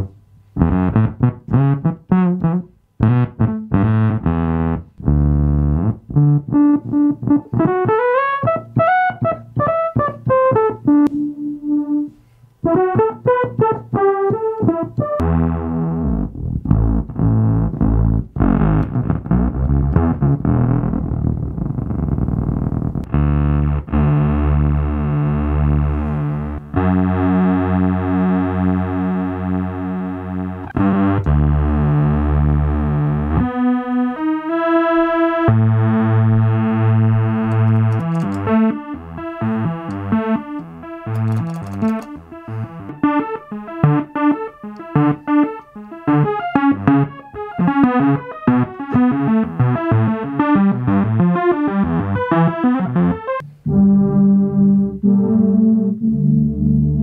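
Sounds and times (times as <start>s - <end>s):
synth-like electric bass notes: 0.0s - 57.0s.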